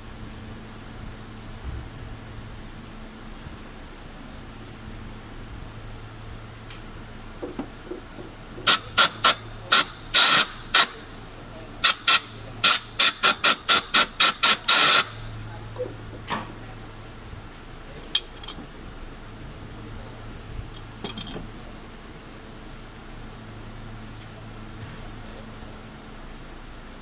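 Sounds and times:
low hum: 0.0s - 27.0s
spray hissing bursts: 8.7s - 11.1s, 11.8s - 15.3s.

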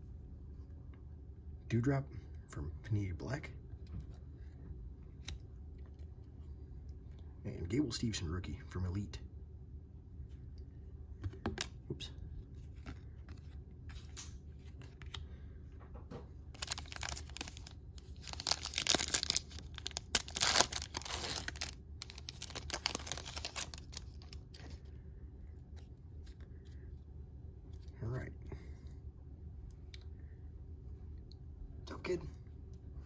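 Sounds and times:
foil wrapper tearing and crinkling: 16.5s - 24.8s.

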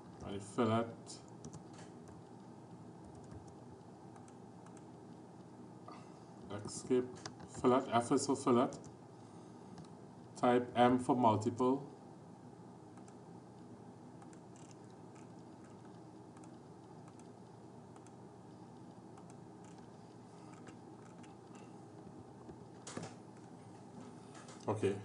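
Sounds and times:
low room hum: 0.0s - 25.0s
keystrokes: 1.4s - 2.2s, 3.0s - 4.9s, 14.2s - 18.2s
computer mouse clicks: 3.1s - 4.9s, 13.0s - 13.2s, 14.2s - 18.2s, 19.2s - 19.9s, 20.5s - 21.7s.

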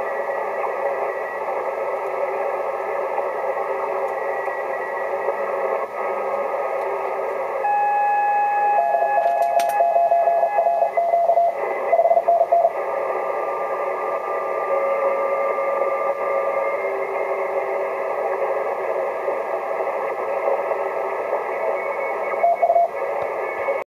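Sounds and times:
radio band hiss: 0.0s - 23.9s
morse code beeps: 7.6s - 12.8s, 21.5s - 23.8s.

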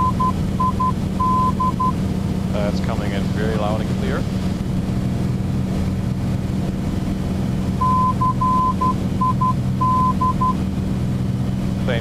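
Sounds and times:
morse code tone: 0.0s - 1.9s, 7.8s - 10.6s
propeller plane engine drone: 0.0s - 12.0s.

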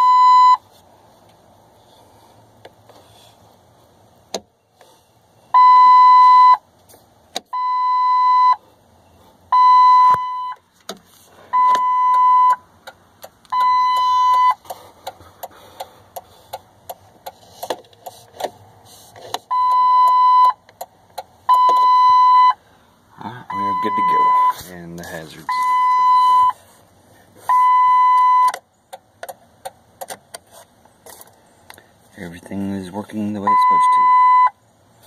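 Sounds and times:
electronic warning chime beeping: 9.6s - 10.6s, 11.5s - 12.6s, 13.6s - 14.6s, 21.5s - 22.6s, 23.5s - 24.6s, 25.5s - 26.6s, 33.4s - 34.5s.

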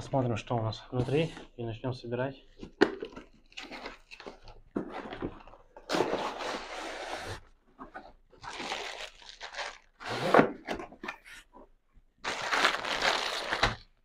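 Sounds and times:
cardboard and plastic packaging rustling: 2.6s - 11.5s, 12.2s - 14.0s.

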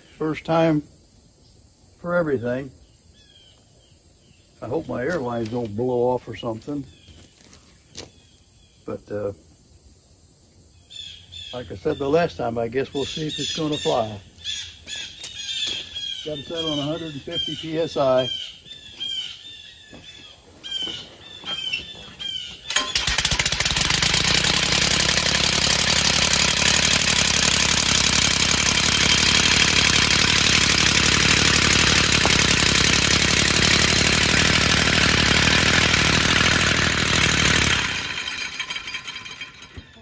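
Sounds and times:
bird chirping: 2.6s - 9.2s, 10.7s - 22.9s.

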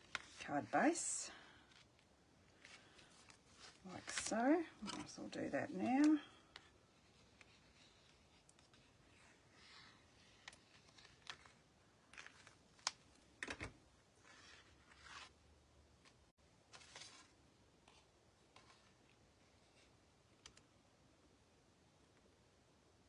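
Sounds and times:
paper rustling: 1.7s - 15.4s, 16.0s - 19.9s.

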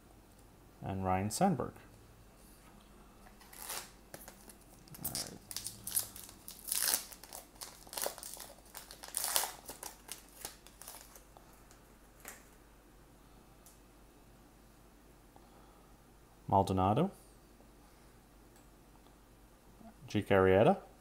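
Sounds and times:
wrapper tearing and crinkling: 3.4s - 11.3s.

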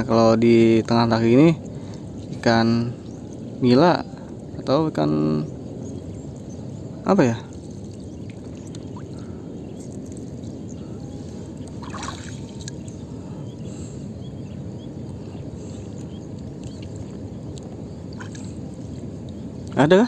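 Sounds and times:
steady low rumble: 0.0s - 20.0s
water dripping and trickling: 7.4s - 13.1s, 15.9s - 19.8s.

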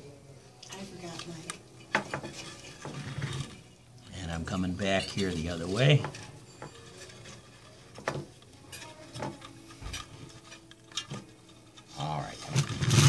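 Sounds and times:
faint scrapes: 2.3s - 3.8s, 5.0s - 12.8s.

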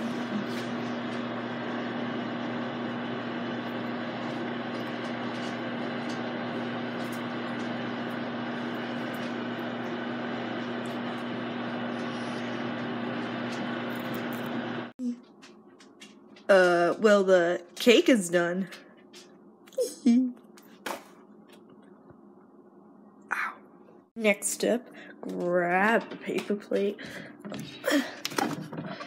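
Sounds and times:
microwave oven humming: 0.0s - 15.3s.

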